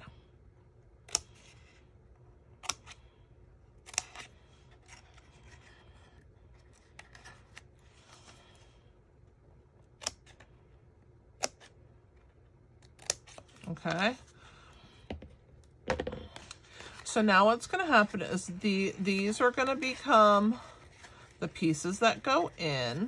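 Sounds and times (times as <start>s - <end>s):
scissors snipping cardstock: 1.0s - 1.6s, 2.6s - 3.0s, 3.8s - 5.1s, 9.9s - 10.4s, 11.4s - 11.7s, 12.8s - 14.0s.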